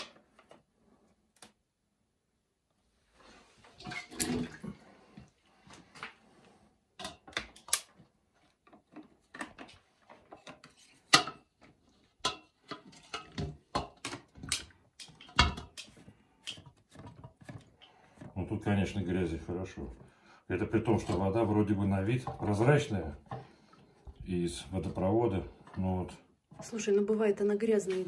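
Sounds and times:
water sloshing and splashing: 0:03.2 - 0:06.2
plastic parts clunking: 0:08.6 - 0:18.6.

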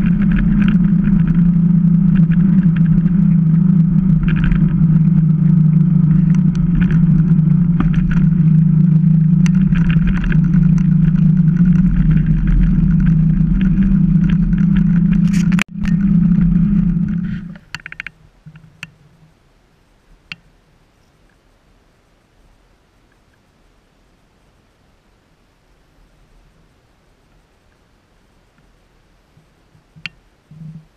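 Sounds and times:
wind buffeting camera: 0:00.0 - 0:18.8
rattling clicks: 0:00.0 - 0:18.9
bike tyre rumble on asphalt: 0:00.0 - 0:19.4.

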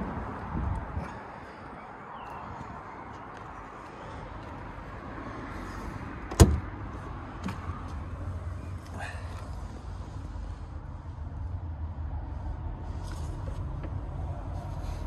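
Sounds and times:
car door slam: 0:06.3 - 0:06.7.

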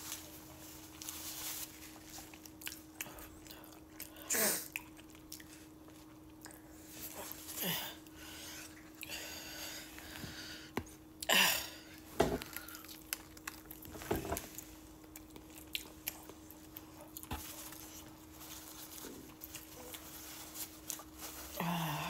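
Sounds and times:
paper napkin rustling: 0:00.0 - 0:02.3, 0:17.3 - 0:21.6
person chewing: 0:00.8 - 0:10.2, 0:10.9 - 0:21.6.

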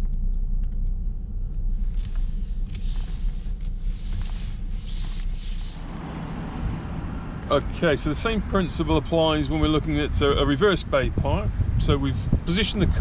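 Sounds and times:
car engine and tyres rumbling: 0:00.0 - 0:13.0
hands rubbing steering wheel: 0:01.6 - 0:06.0.

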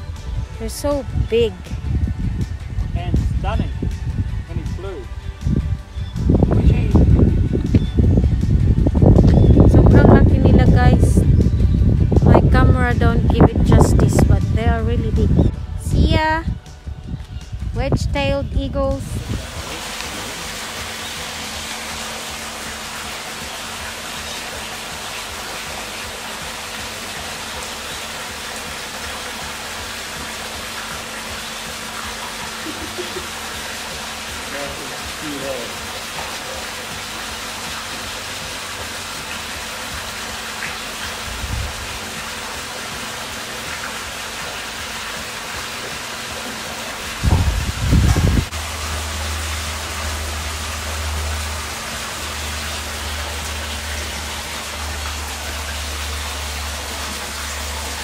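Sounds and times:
running water rushing: 0:00.0 - 0:58.0
loud low thumps: 0:47.2 - 0:48.7.

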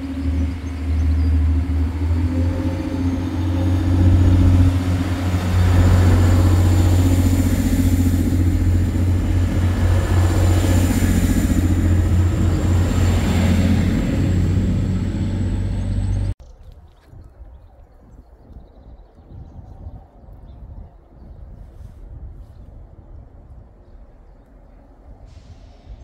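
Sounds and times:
diesel train engine rumbling: 0:00.0 - 0:16.4.

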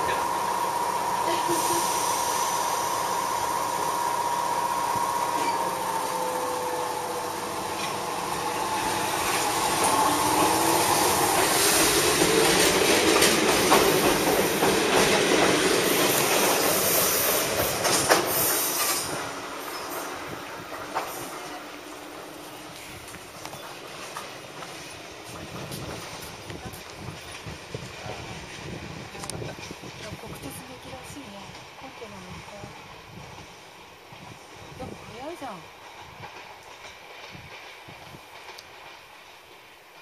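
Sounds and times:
electric train motor whine: 0:00.0 - 0:13.0
train wheels clacking over rail joints: 0:04.9 - 0:21.7, 0:34.1 - 0:40.0.

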